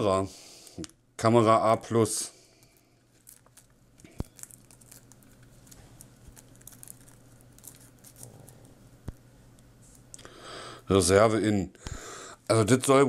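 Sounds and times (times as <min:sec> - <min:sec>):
cables rustling in hands: 0:02.5 - 0:10.2.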